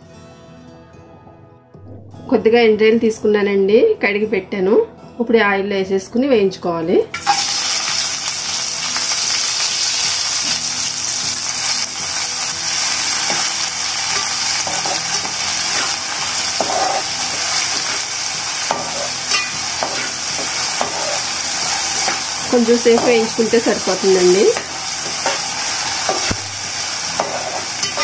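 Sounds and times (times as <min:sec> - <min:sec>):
prawns sizzling in hot oil: 0:07.2 - 0:28.0
metal spatula scraping pan: 0:14.1 - 0:23.5, 0:27.2 - 0:28.0.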